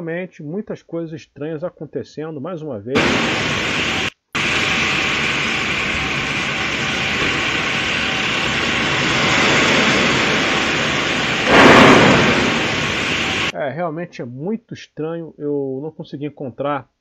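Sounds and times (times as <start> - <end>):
wind rushing: 3.0 - 13.5.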